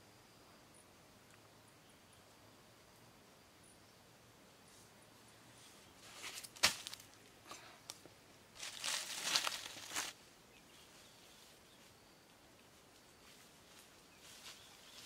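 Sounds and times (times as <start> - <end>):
bare feet crunching dry leaves: 6.0 - 7.2, 8.6 - 10.2.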